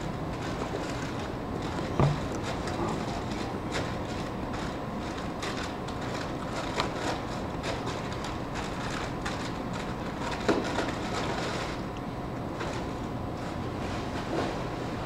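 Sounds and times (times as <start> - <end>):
cafeteria room hum: 0.0 - 15.0
sharp knock: 2.0 - 2.2.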